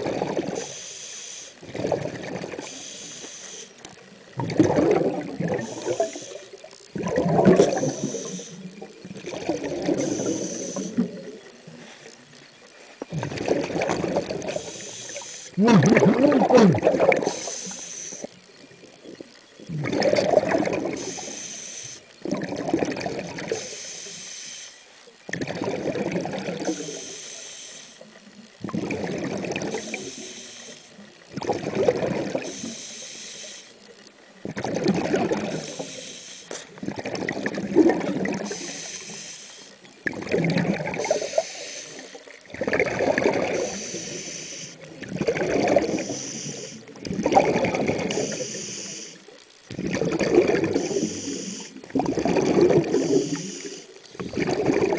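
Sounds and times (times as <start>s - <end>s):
exhaled bubbles rushing: 0.0s - 0.6s, 1.6s - 2.8s, 4.3s - 11.5s, 13.1s - 14.8s, 15.6s - 17.5s, 19.6s - 21.1s, 22.2s - 23.6s, 25.3s - 26.8s, 28.5s - 30.2s, 31.3s - 32.5s, 34.4s - 35.8s, 36.8s - 38.7s, 40.0s - 41.3s, 42.5s - 43.9s, 44.9s - 46.2s, 47.0s - 48.4s, 49.7s - 51.1s, 51.8s - 53.5s, 54.2s - 54.9s
regulator hiss on inhale: 0.0s - 4.3s, 5.5s - 6.7s, 7.5s - 8.9s, 9.8s - 13.2s, 14.0s - 18.5s, 20.7s - 22.2s, 23.4s - 25.1s, 26.4s - 28.4s, 29.6s - 31.1s, 32.2s - 34.4s, 35.3s - 37.0s, 38.3s - 40.0s, 41.0s - 42.5s, 43.3s - 49.5s, 50.1s - 54.9s.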